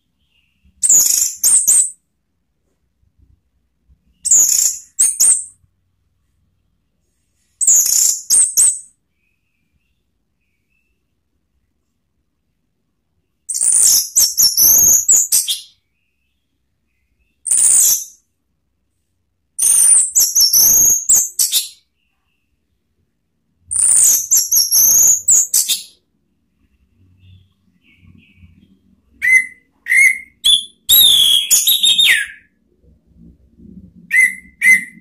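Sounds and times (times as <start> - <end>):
thrush warbling whistles: 29.2 - 32.5, 34.1 - 35.0.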